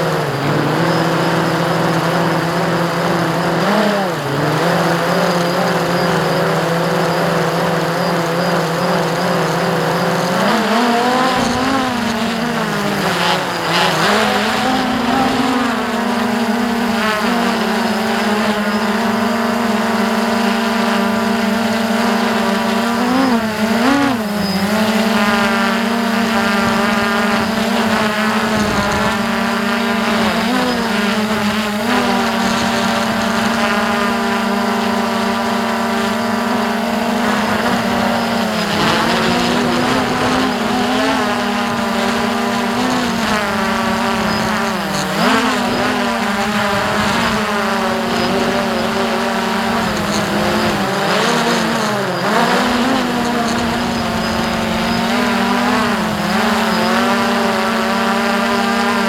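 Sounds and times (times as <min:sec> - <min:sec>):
drone propellers whining: 0:00.0 - 0:59.0.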